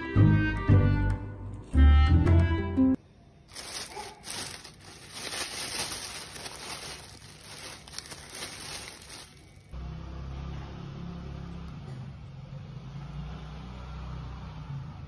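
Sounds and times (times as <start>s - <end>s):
music: 0.0s - 3.0s
plastic bag rustling: 3.5s - 9.8s.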